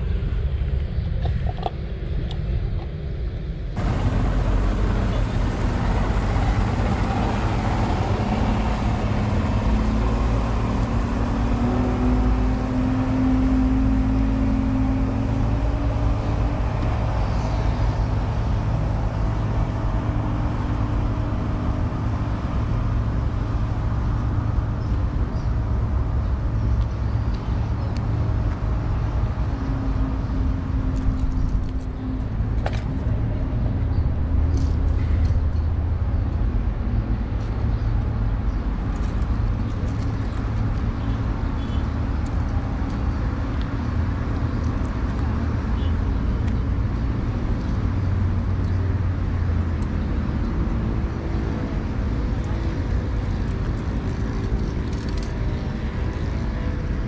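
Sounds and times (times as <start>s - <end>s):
low rumble: 0.0s - 40.8s
motorboat engine running: 3.8s - 23.4s.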